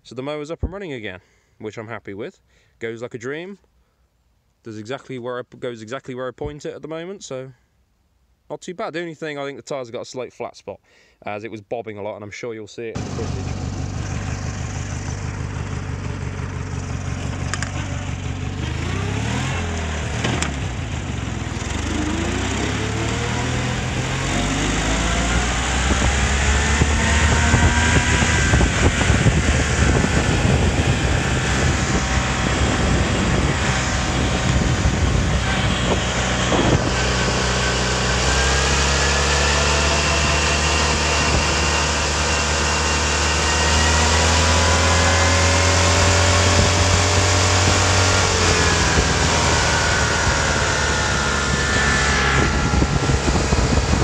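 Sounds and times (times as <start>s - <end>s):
mower engine running hard: 13.0s - 54.0s
rising whines: 13.0s - 54.0s.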